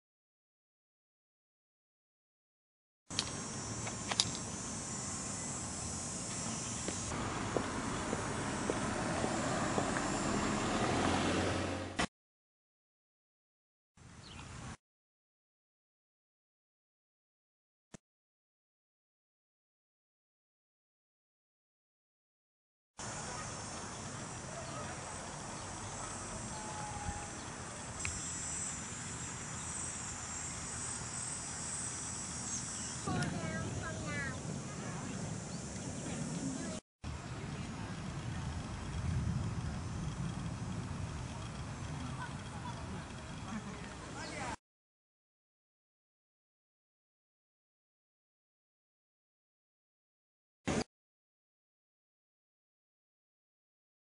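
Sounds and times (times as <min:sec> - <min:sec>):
insects shrilling: 0:03.1 - 0:07.1, 0:23.0 - 0:36.8
high hiss: 0:03.1 - 0:11.0, 0:23.0 - 0:37.7
outdoor background noise: 0:03.1 - 0:12.1, 0:14.0 - 0:14.8, 0:23.0 - 0:44.6
light click: 0:28.0 - 0:28.2.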